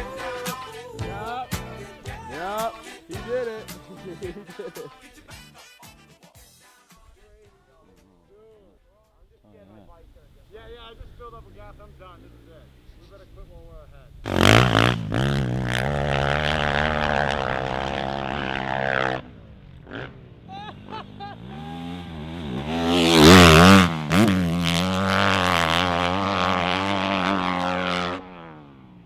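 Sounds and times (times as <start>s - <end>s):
motocross bike engine revving: 10.4s - 29.0s.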